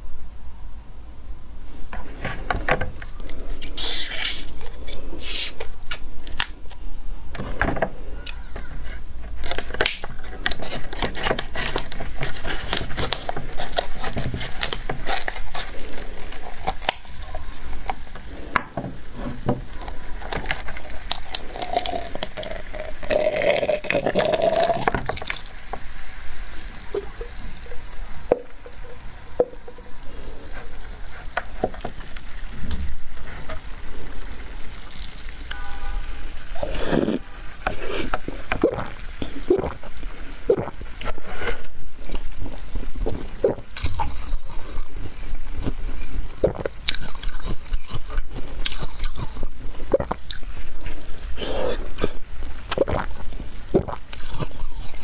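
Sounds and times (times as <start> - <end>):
plastic bottle crackling: 9.0 - 48.5.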